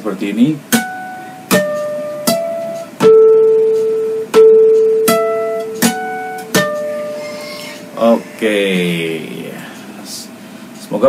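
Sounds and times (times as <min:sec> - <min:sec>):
guitar harmonics ringing: 0:00.7 - 0:09.4.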